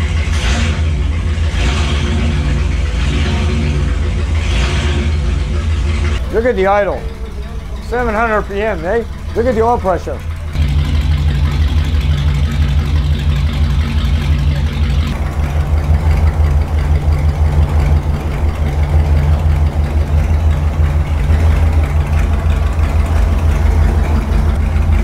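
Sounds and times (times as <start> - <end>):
engine idling: 0.0 - 25.0.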